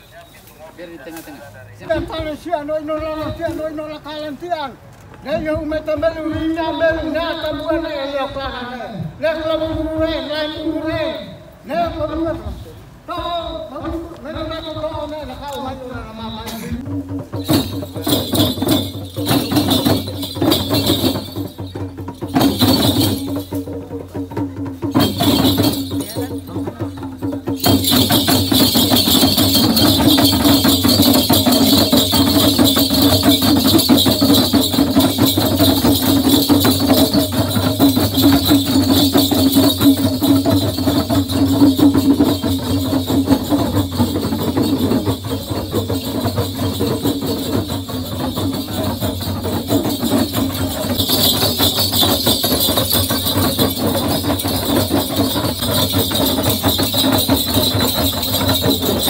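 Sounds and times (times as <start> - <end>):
hand drums beaten fast: 16.7 - 59.0
metallic jingling: 16.8 - 59.0.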